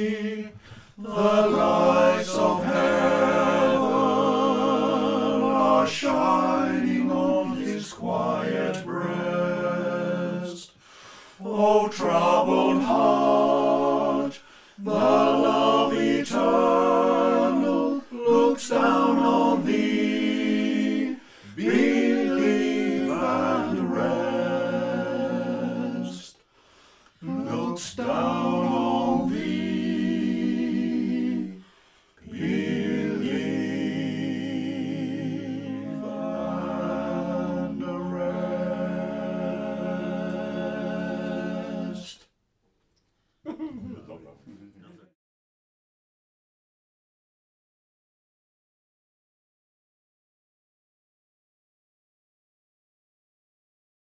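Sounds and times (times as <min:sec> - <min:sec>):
men singing in harmony: 0:00.0 - 0:10.8, 0:11.4 - 0:26.4, 0:27.2 - 0:31.6, 0:32.2 - 0:42.2.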